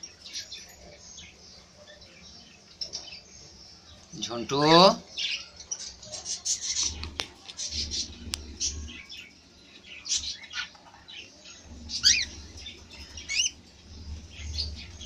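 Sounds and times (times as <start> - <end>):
long wavering bird calls: 11.6 - 15.0
cockatiels chirping: 12.0 - 12.4.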